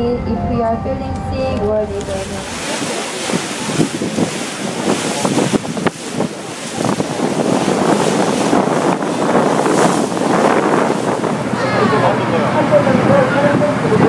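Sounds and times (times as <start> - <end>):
water rushing past boat: 1.7 - 14.0
wind buffeting microphone: 1.7 - 14.0.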